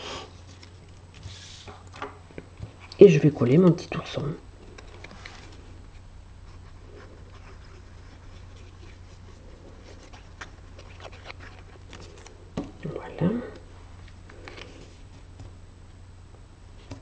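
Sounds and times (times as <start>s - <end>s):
steady low hum: 0.0s - 17.0s
paper rustling: 0.4s - 2.0s, 6.5s - 12.4s.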